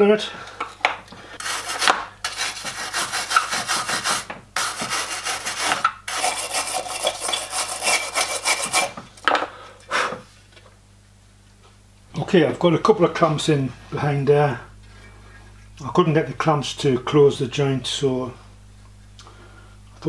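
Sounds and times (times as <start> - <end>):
abrasive pad scrubbing metal: 1.4 - 9.0.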